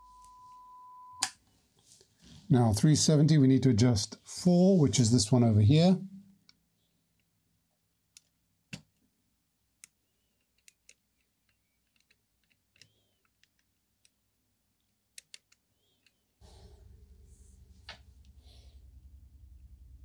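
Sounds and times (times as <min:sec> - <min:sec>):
plastic tool clicks and ticks: 0:08.1 - 0:09.0, 0:09.8 - 0:14.2, 0:14.8 - 0:16.2
low hum: 0:16.4 - 0:20.0.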